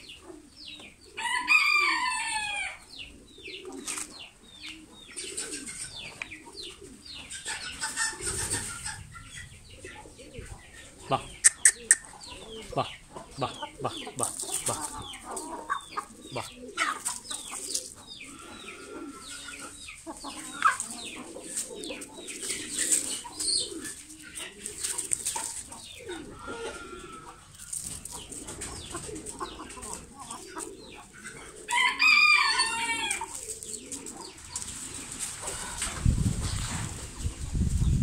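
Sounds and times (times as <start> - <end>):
roosters clucking: 0.0 - 38.0
rooster crowing: 1.2 - 2.8, 31.7 - 33.3.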